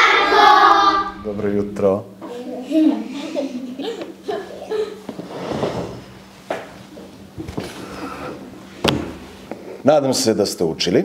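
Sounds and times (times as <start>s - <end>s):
chair knocking against floor: 5.1s - 7.8s, 8.8s - 9.3s
chair scraping across floor: 5.1s - 9.5s.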